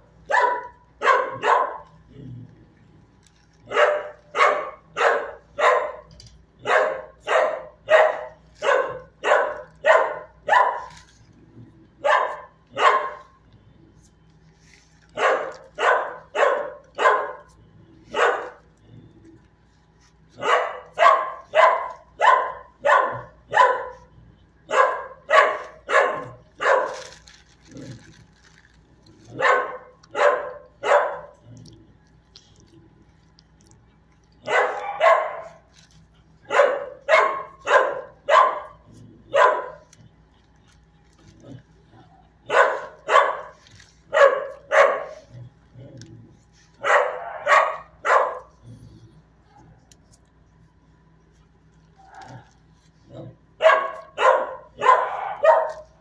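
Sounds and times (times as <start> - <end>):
dog barking: 0.2 - 2.0, 3.6 - 11.0, 12.0 - 13.4, 15.1 - 18.7, 20.3 - 27.2, 29.3 - 31.4, 34.4 - 35.6, 36.4 - 40.0, 42.0 - 45.4, 46.8 - 48.5, 53.2 - 56.0.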